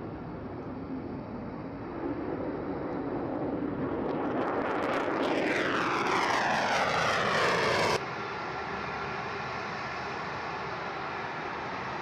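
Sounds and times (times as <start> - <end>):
fighter jet on afterburner: 2.0 - 8.0.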